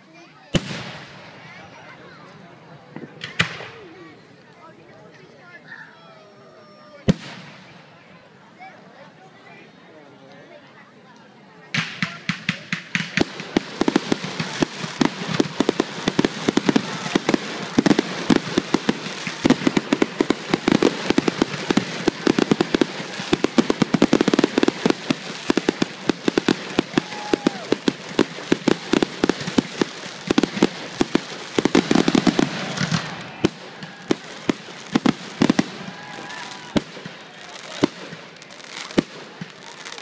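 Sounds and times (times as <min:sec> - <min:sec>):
fireworks bangs and pops: 0:00.5 - 0:01.9, 0:02.8 - 0:03.8, 0:07.0 - 0:07.8, 0:11.7 - 0:40.0.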